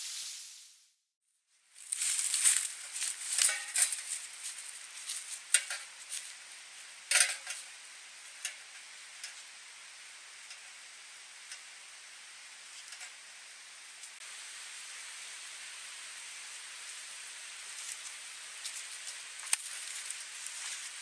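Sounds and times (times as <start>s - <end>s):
faint steady hiss: 0.0s - 0.9s, 1.5s - 21.0s
footsteps crunching dry leaves: 1.7s - 6.9s, 16.9s - 21.0s.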